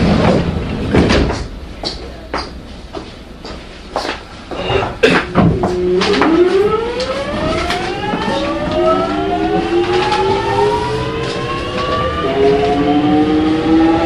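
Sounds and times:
electric train motors whining: 5.6 - 14.0.

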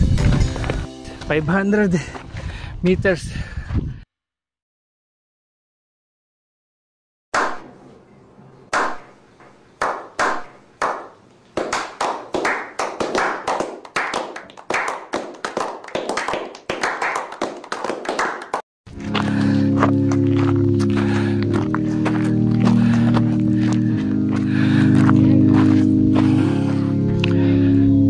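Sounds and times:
music: 0.0 - 1.7, 18.9 - 28.0
group clapping: 9.8 - 18.6.

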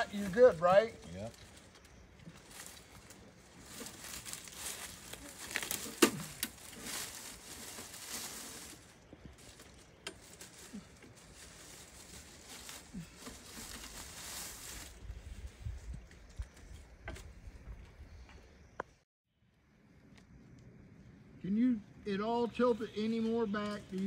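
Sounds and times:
brush rustling and crackling: 0.0 - 17.6.

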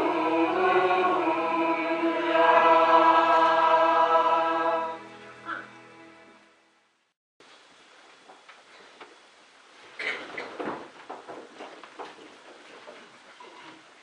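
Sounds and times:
mixed choir singing: 0.0 - 6.2.

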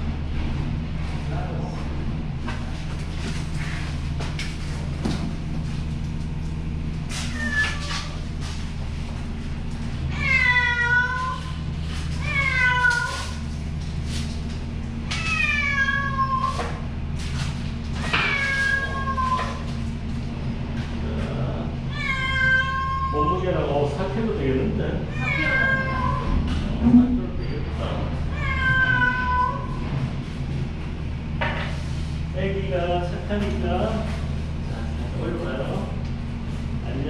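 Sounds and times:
steady low hum: 0.0 - 37.0
cat meowing: 7.2 - 8.2, 10.1 - 11.6, 12.2 - 13.4, 15.2 - 16.7, 18.2 - 19.7, 21.9 - 23.3, 25.1 - 26.4, 28.3 - 29.8.

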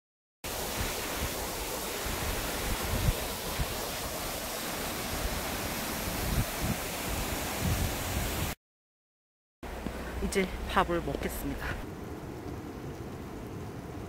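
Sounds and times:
waterfall rushing: 0.5 - 8.6.

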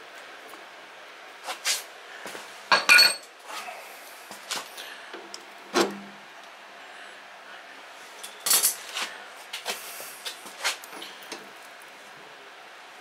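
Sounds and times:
metal tools clinking: 2.7 - 3.3, 8.2 - 8.9.

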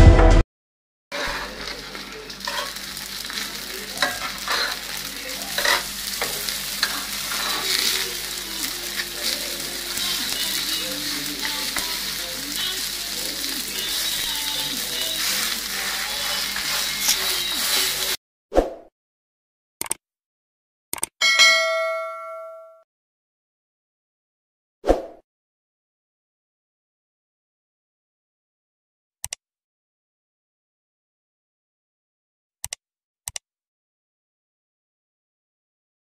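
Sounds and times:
flatbread sizzling in grill pan: 1.2 - 18.2
metal tongs clicking on pan: 1.3 - 12.0.

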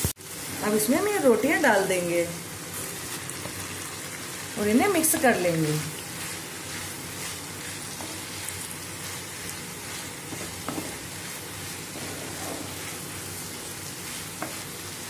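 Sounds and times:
food sizzling in oil: 0.0 - 15.0
wooden spatula knocking pan: 10.3 - 11.0.

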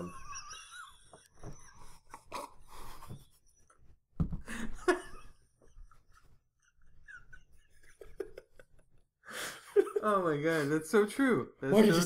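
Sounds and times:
man laughing breathily: 0.2 - 3.5, 4.4 - 10.0.

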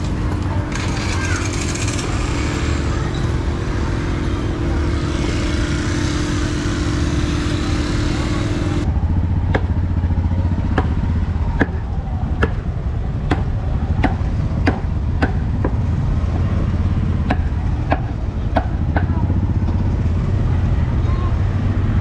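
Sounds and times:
low engine hum: 0.0 - 22.0
cleaver chopping: 9.5 - 9.7, 10.7 - 11.0, 11.6 - 11.8, 12.4 - 12.6, 13.3 - 15.9.

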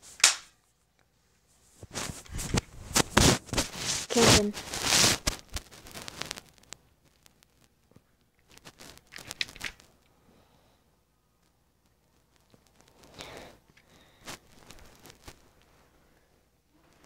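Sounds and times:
rustling against bedding: 1.4 - 6.6.

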